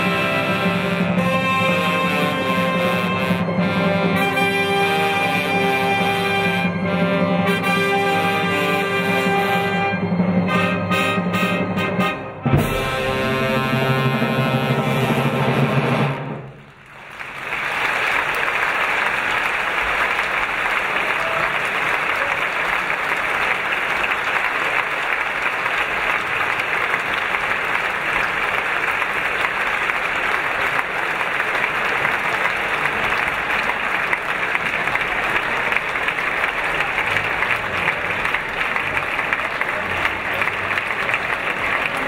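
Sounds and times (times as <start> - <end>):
orchestra final chord: 4.2 - 16.2
audience applause: 15.8 - 42.0.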